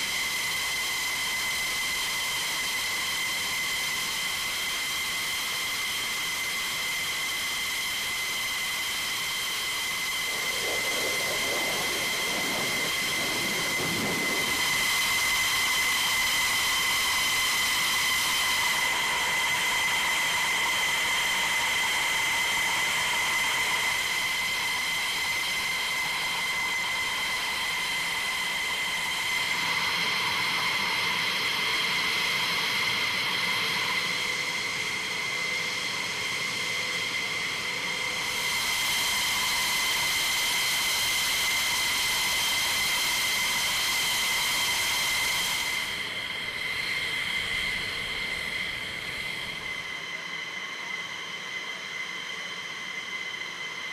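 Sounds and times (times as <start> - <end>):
jet engine turbine whine: 0.0 - 53.9.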